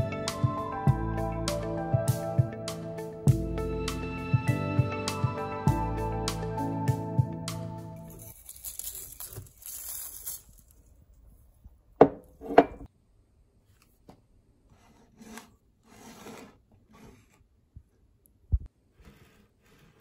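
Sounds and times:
salt grains pouring: 8.2 - 10.8.

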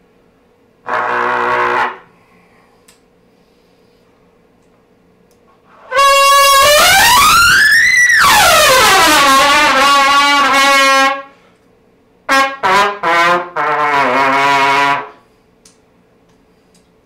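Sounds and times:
trumpet playing: 0.8 - 2.1, 5.7 - 11.4, 12.3 - 15.2.

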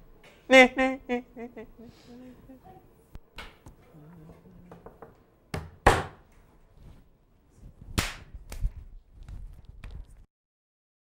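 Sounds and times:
sharp smacks: 8.0 - 8.7.

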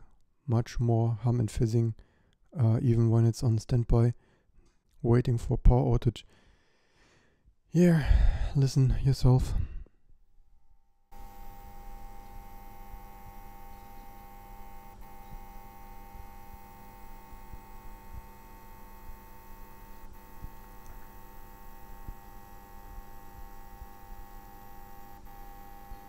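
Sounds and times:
electrical hum with whine: 9.2 - 26.0.

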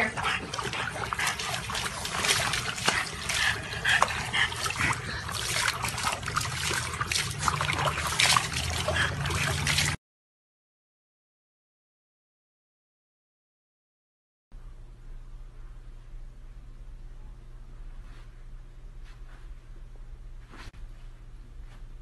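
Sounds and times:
water splashing in a plastic tub: 0.3 - 10.0.

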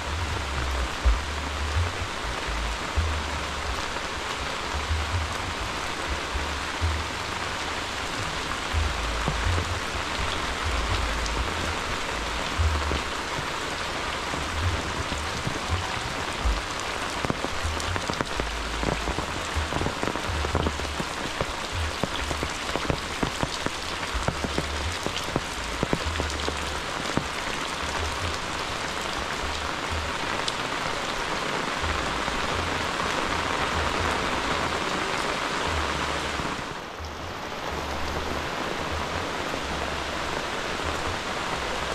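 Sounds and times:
low rumbles: 0.0 - 31.1
rain falling: 0.0 - 41.9
raindrops tapping on surfaces: 0.0 - 41.9.

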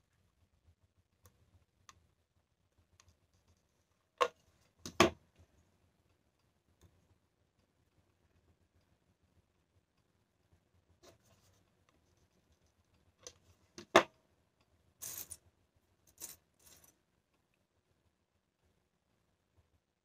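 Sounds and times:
shells clicking and rattling: 15.0 - 15.4.

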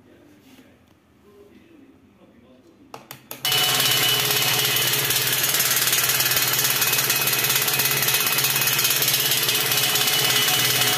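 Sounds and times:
motor rattling against tin lid: 3.4 - 10.9.

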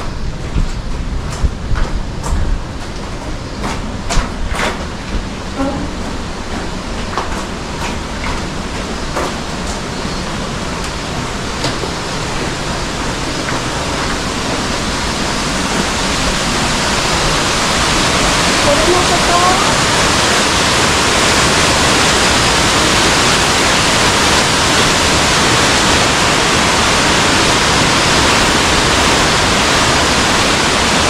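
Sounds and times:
footsteps on rocky floor: 0.0 - 16.4
stream and waterfall rushing: 2.8 - 31.0.

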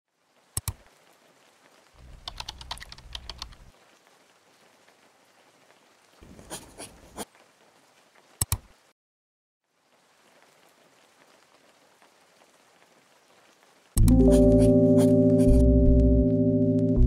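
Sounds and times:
keyboard key clicks: 14.0 - 14.2.

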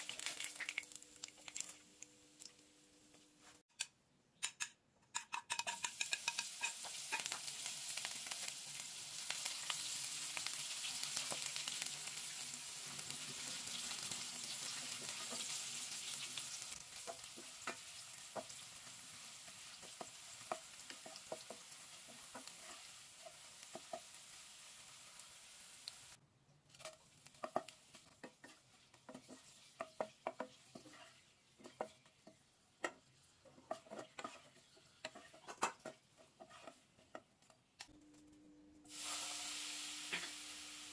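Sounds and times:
shallots sizzling in oil: 0.0 - 3.1, 5.5 - 37.2, 38.9 - 40.9
wooden spatula scraping pan: 26.8 - 37.3.

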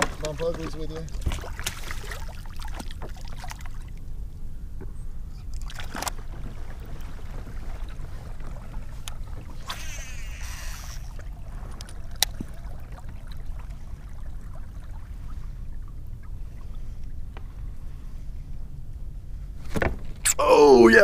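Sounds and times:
low rumble of water and wind: 0.0 - 21.0
short hiss: 9.6 - 11.1.

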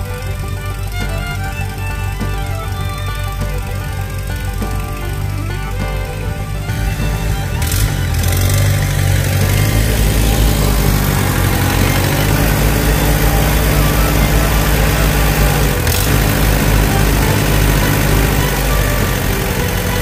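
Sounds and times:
tractor engine running steadily: 0.0 - 20.0.

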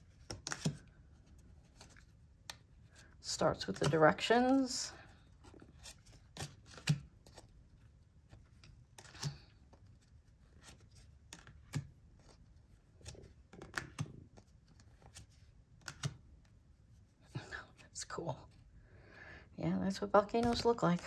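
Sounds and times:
cards flicking and sliding: 0.1 - 0.9, 5.6 - 7.5, 8.2 - 10.0, 10.6 - 16.3.

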